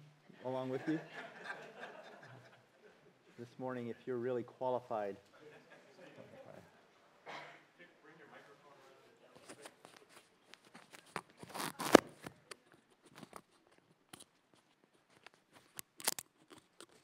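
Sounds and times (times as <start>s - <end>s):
microphone handling clicks and rustles: 9.4s - 17.0s.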